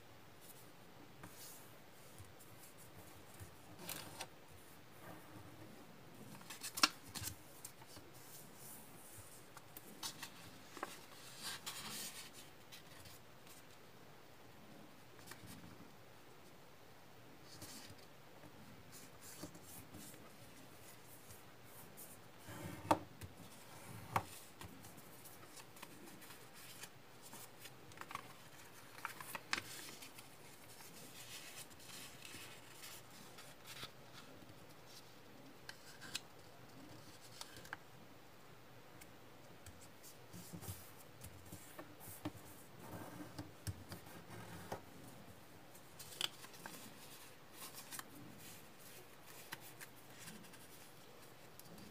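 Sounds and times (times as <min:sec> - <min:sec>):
paper rustling and crinkling: 0:01.2 - 0:04.3, 0:06.2 - 0:13.8, 0:18.9 - 0:37.8, 0:45.7 - 0:51.9.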